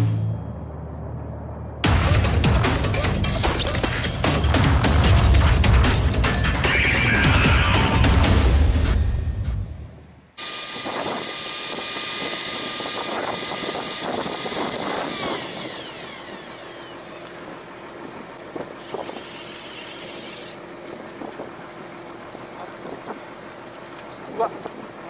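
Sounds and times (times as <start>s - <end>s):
fishing reel motor whine: 10.4s - 24.2s
short high beep: 17.7s - 18.4s.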